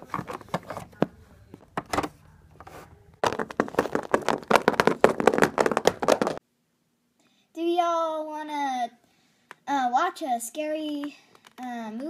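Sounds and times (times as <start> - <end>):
plastic figurines tapping: 3.2 - 6.4.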